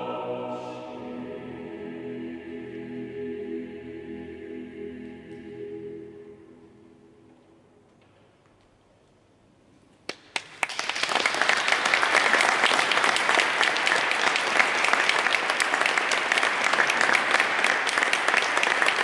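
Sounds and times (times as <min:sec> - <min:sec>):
audience applauding: 0:10.1 - 0:19.0.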